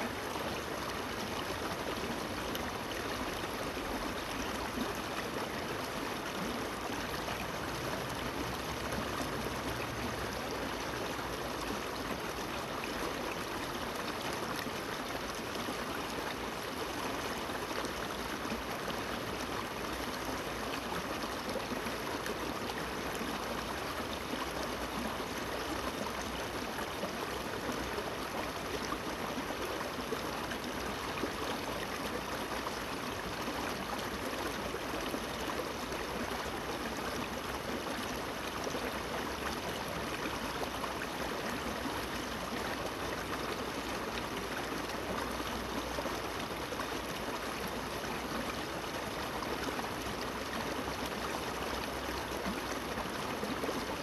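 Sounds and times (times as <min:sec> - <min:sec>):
river water babbling over stones: 0:00.0 - 0:54.0.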